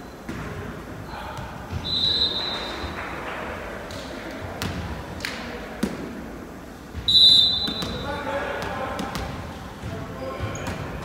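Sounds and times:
referee's whistle: 1.8 - 2.9, 7.1 - 8.0.

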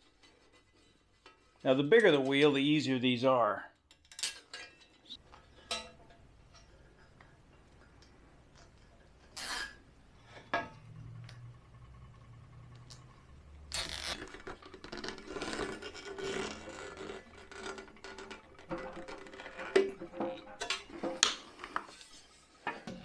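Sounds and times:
rubber tire scratching and rubbing: 9.3 - 9.9, 13.7 - 22.6.

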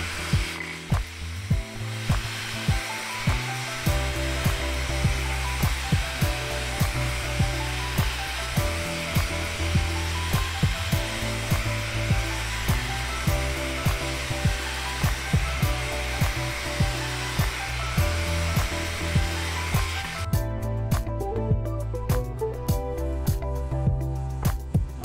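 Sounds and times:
angle grinder running: 0.0 - 20.4
background music with steady beat: 0.0 - 25.0.

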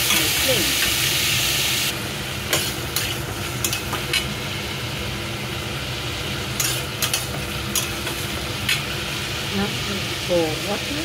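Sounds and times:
vegetables sizzling in a pan: 0.0 - 11.0
metal spatula scraping a pan: 6.6 - 8.8.

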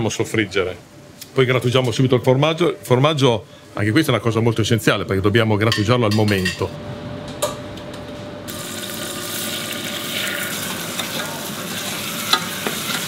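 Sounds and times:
rice sizzling in hot fat: 8.5 - 13.0.

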